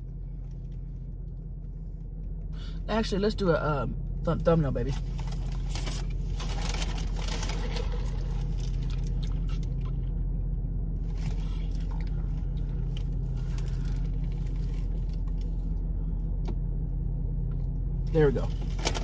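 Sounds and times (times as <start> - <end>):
car engine humming: 0.0 - 19.0
faint rustles and clicks: 4.9 - 10.0.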